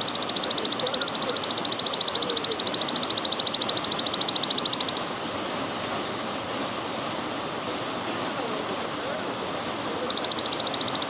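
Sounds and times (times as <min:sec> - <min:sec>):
grasshopper trilling: 0:00.0 - 0:05.1, 0:10.0 - 0:11.0.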